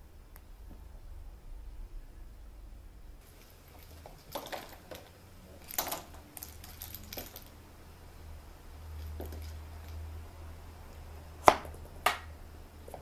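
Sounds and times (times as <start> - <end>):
plastic toy balls clicking: 3.8 - 7.6.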